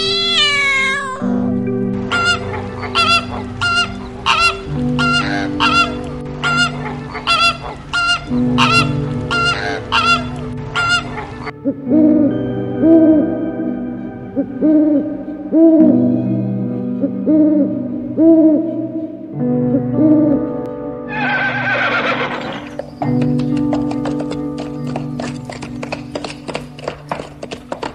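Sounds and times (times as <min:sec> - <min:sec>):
music drone: 0:00.0 - 0:27.9
flamingos honking: 0:02.0 - 0:11.5
owl hoots: 0:02.1 - 0:12.1.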